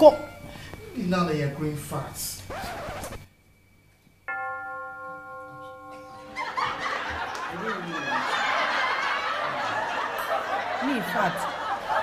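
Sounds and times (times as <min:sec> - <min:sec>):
bell-like chime: 0:04.3 - 0:07.2.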